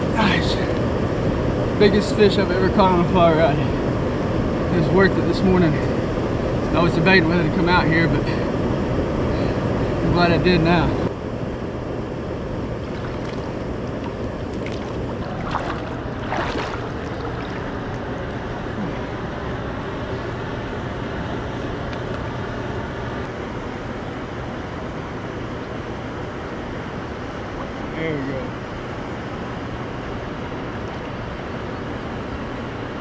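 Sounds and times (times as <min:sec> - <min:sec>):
low hum: 0:02.4 - 0:25.3
water splashing: 0:12.8 - 0:19.0
river water rushing: 0:12.8 - 0:19.1.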